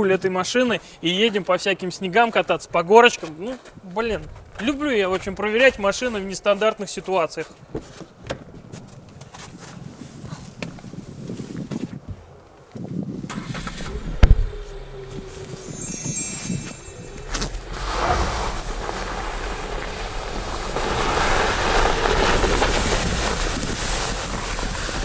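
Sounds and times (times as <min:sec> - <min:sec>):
car pulling away through snow: 0:13.3 - 0:25.0
short electronic chime: 0:14.8 - 0:18.6.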